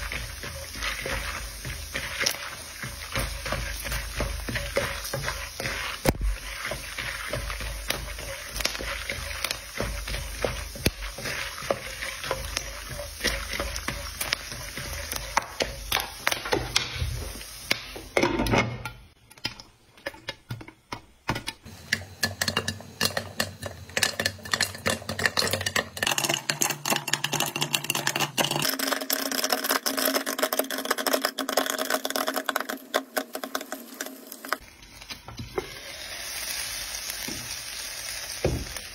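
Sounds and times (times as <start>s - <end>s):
wooden spatula scraping pan: 0.0s - 17.5s
popcorn popping: 0.0s - 35.6s
popcorn sizzling in hot oil: 0.0s - 38.9s.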